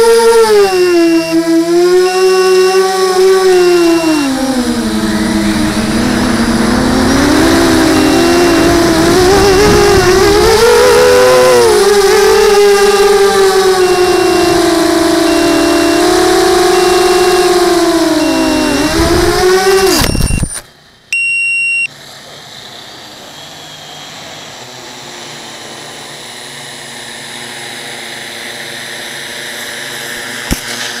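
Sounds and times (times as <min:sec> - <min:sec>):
drone motors whining: 0:00.0 - 0:21.9
loud electronic beep: 0:00.6 - 0:01.4, 0:02.0 - 0:20.6, 0:21.2 - 0:21.9
faint repeating beep: 0:03.6 - 0:04.3, 0:07.2 - 0:08.8, 0:13.8 - 0:19.2, 0:20.0 - 0:21.9
click: 0:19.8 - 0:20.7.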